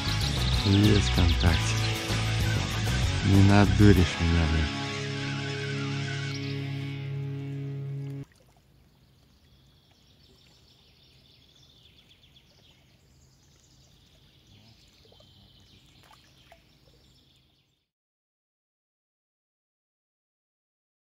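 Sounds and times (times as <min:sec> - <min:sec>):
background music: 0:00.0 - 0:08.2.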